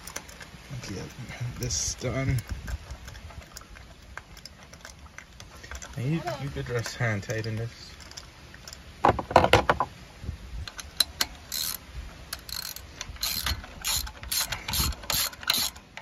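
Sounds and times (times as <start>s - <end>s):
ratchet pawl clicking: 10.7s - 16.0s.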